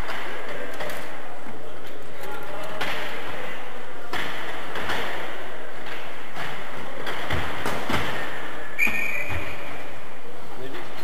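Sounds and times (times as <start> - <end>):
referee's whistle: 8.8 - 9.6.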